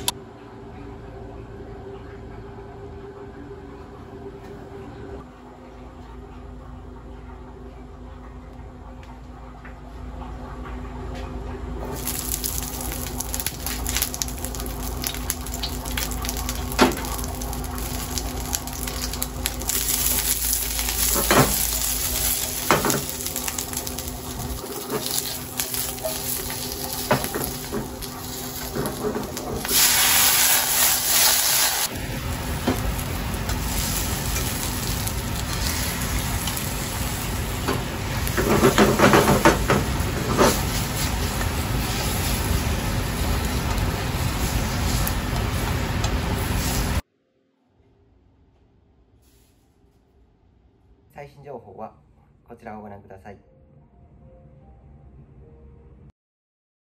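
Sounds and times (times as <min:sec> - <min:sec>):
peppers sizzling in a pan: 0:11.9 - 0:47.0
liquid hissing in hot pan: 0:12.0 - 0:47.0.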